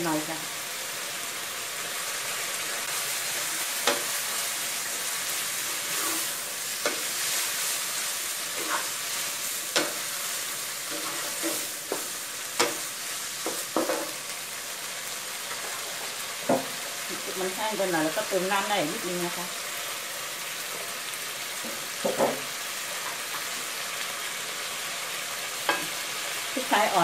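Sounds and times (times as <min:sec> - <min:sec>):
food sizzling in a wok: 0:00.0 - 0:27.0
wooden spatula scraping a pan: 0:02.8 - 0:14.2.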